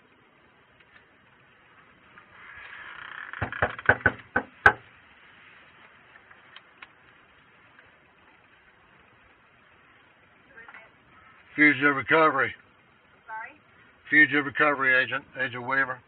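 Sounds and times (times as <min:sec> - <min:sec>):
knocks on a door: 0:03.4 - 0:04.8.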